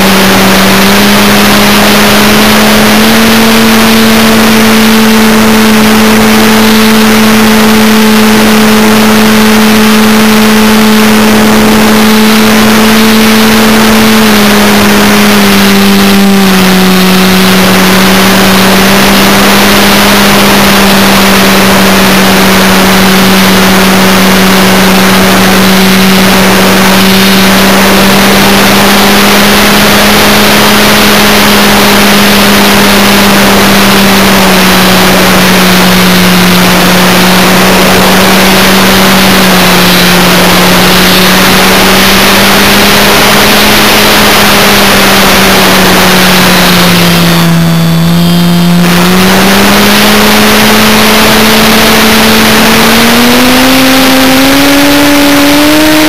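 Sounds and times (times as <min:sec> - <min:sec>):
model aircraft motor drone: 0:00.0 - 0:56.0.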